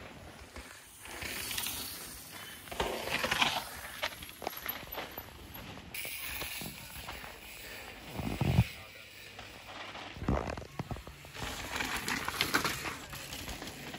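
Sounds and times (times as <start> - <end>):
bike tyres sliding over dirt: 0.0 - 13.9.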